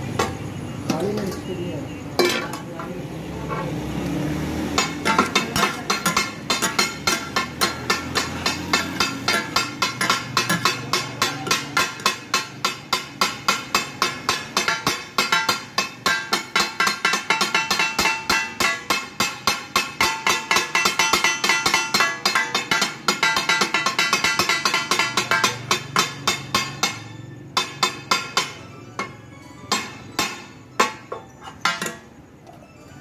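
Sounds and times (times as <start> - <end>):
metal spatulas chopping on griddle: 3.4 - 32.2.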